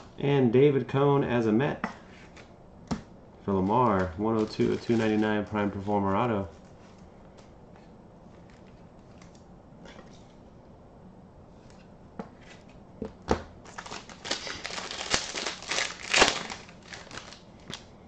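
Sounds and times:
foil wrapper crinkling: 0:03.6 - 0:05.8, 0:13.6 - 0:17.9.

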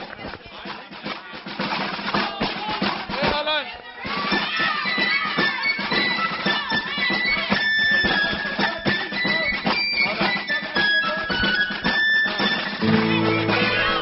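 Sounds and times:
voices whooping and singing: 0:03.7 - 0:14.0
lively music with piping melody: 0:04.1 - 0:14.0.

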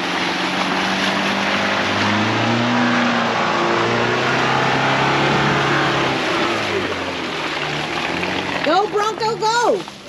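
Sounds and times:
vehicle engine running under load: 0:00.0 - 0:10.0.

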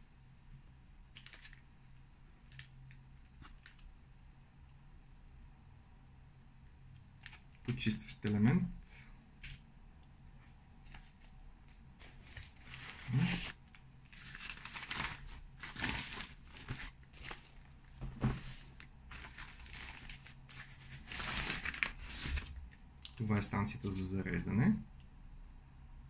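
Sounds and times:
packaging rustling and crinkling: 0:01.2 - 0:01.6, 0:12.0 - 0:22.8.

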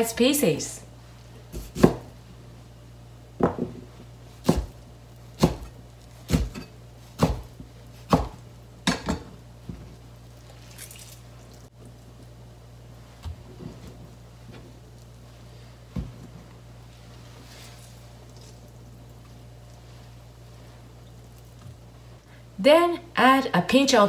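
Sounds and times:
knife chopping on plastic board: 0:01.6 - 0:02.1, 0:04.4 - 0:04.8, 0:05.4 - 0:05.7, 0:06.3 - 0:06.6, 0:07.2 - 0:07.5, 0:08.1 - 0:09.1.

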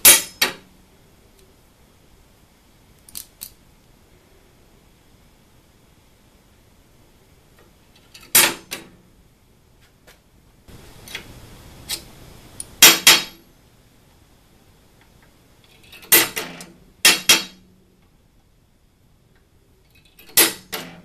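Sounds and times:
center punch striking metal bar: 0:00.0 - 0:00.6, 0:12.8 - 0:13.4, 0:16.1 - 0:17.6, 0:20.4 - 0:21.0
faint hiss: 0:00.0 - 0:21.0.

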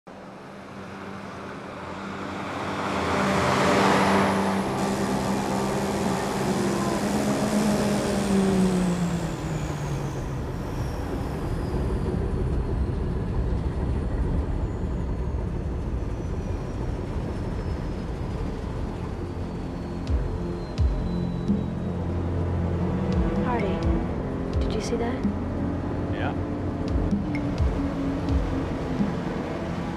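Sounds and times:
motorboat speeding past: 0:00.8 - 0:12.4.

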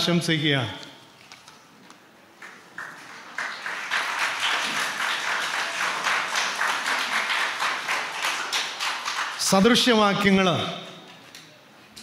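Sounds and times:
audience applause: 0:02.4 - 0:09.5.

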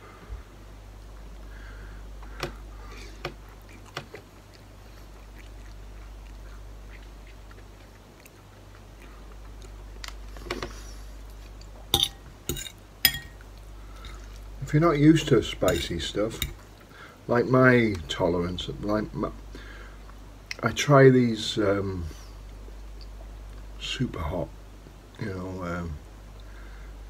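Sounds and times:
steady low hum: 0:00.0 - 0:27.0
person chewing noodles: 0:02.8 - 0:10.4
metal fork clinking on bowl: 0:12.0 - 0:13.4, 0:15.6 - 0:16.6.

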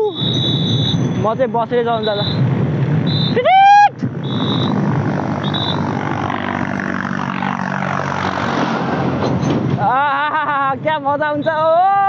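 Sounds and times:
tractor engine passing: 0:04.0 - 0:10.3
short high-pitched tones: 0:04.2 - 0:06.0.

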